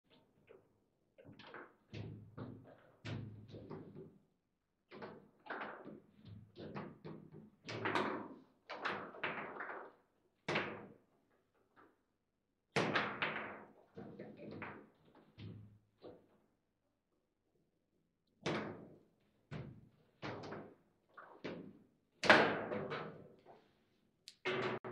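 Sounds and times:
table football knocks and clacks: 1.2 - 4.2, 4.9 - 11.0, 12.8 - 16.2.

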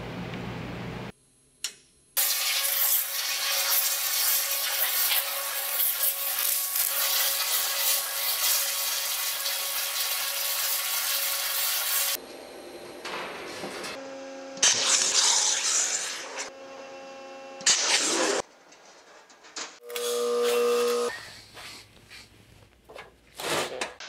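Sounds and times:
waterjet cutter hissing: 2.2 - 12.2.

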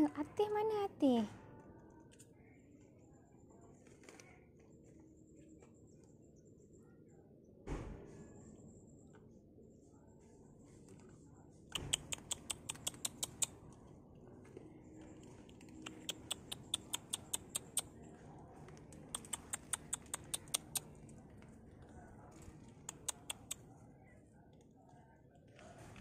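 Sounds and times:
cats crunching dry food: 3.8 - 4.3, 11.8 - 13.8, 14.4 - 17.8, 18.5 - 23.6.

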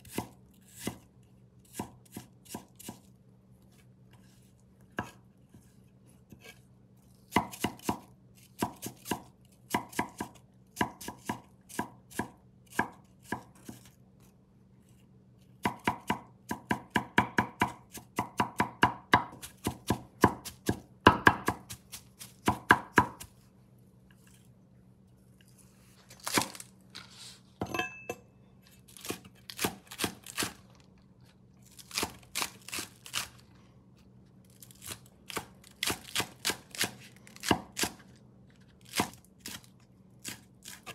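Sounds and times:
cleaver chopping on wooden board: 15.6 - 21.8, 22.4 - 23.2.

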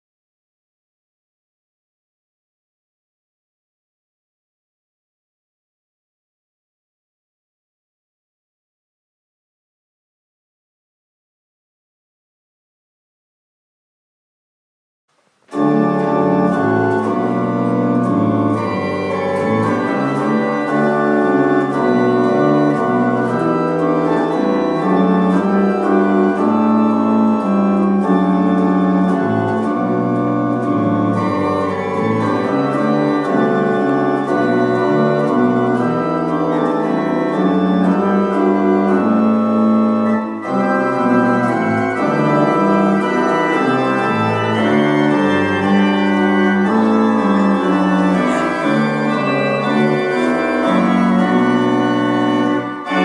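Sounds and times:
pipe organ chords: 15.5 - 53.0.

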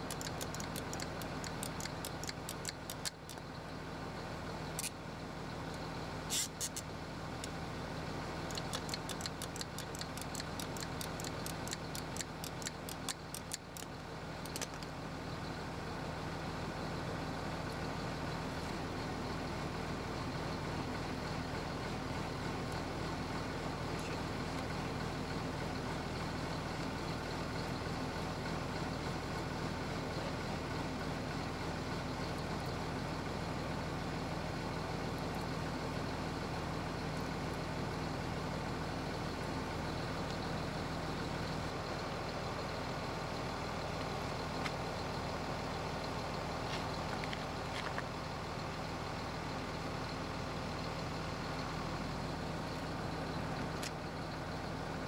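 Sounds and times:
rapid light clicks: 0.0 - 3.5, 4.8 - 5.0, 8.4 - 14.9
tractor engine idling: 0.0 - 55.0.

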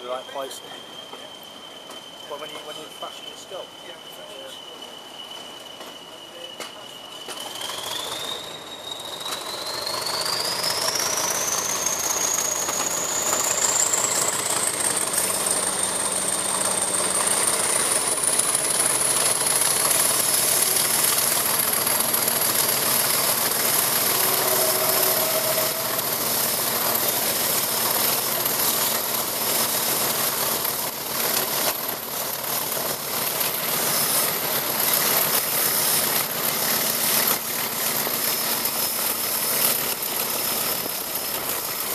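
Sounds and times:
diesel locomotive engine: 0.0 - 41.9
turbocharger whistle: 0.1 - 29.6.

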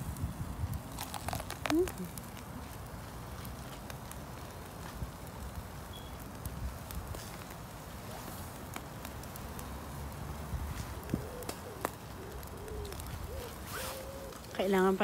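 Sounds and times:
dove cooing: 10.9 - 14.7.

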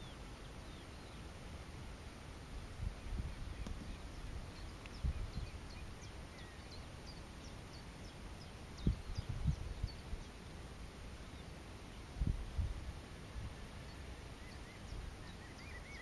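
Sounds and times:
small bird chirping: 0.0 - 1.2, 2.9 - 10.5, 13.7 - 16.0.

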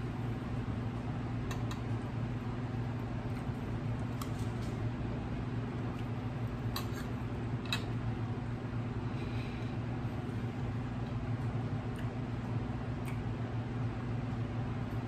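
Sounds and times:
steady low hum: 0.0 - 15.0
person chewing food: 11.4 - 12.3.

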